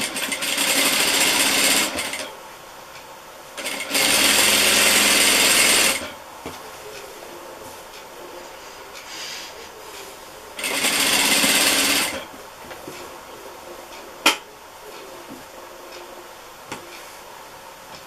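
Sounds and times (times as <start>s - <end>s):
sewing machine stitching: 0.0s - 2.3s, 3.6s - 6.2s, 10.6s - 12.3s.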